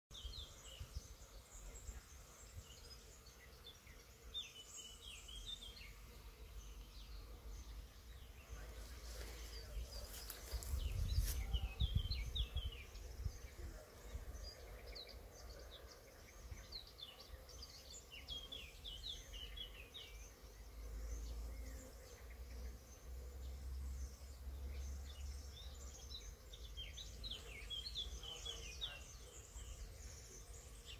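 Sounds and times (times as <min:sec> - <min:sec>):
honeybees humming: 0:00.1 - 0:30.9
small birds chirping: 0:00.1 - 0:30.9
low rumble on microphone: 0:08.5 - 0:14.6.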